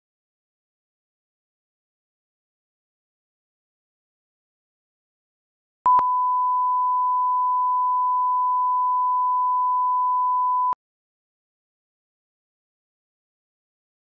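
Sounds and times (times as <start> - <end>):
steady test tone beep: 5.9 - 10.8.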